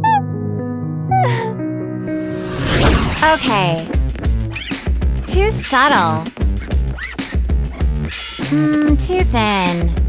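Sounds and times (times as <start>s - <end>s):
girl sobbing: 1.1s - 1.6s.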